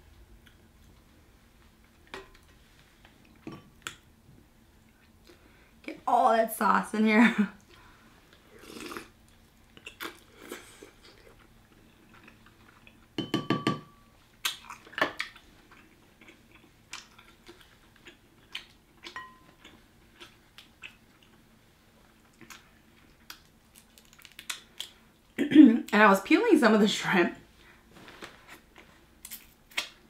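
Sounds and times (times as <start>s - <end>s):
wet chewing: 8.7s - 13.1s, 14.4s - 21.4s, 22.2s - 25.0s.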